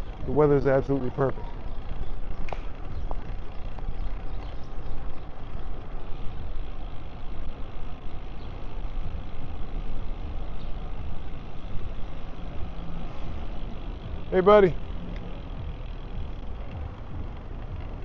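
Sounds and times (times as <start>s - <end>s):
faint ticks: 15.1s - 15.3s.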